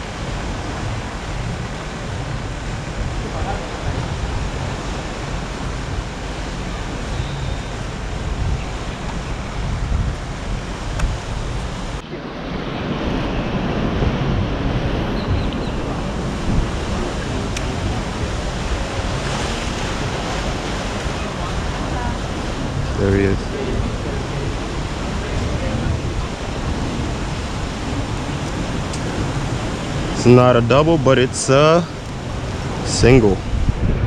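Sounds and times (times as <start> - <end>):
ocean surf washing: 0.0 - 34.0
wind rumbling on microphone: 0.0 - 34.0.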